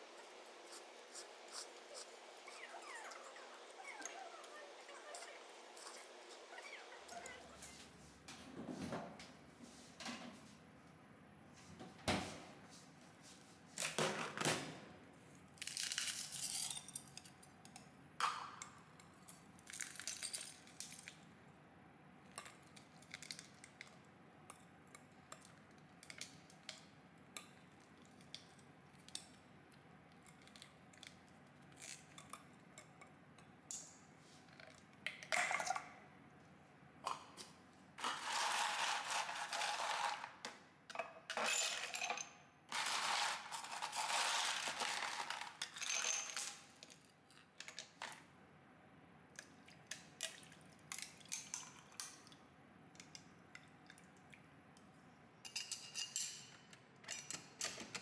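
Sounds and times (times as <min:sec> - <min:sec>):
dishes and cutlery clinking: 0:55.4 - 0:58.0.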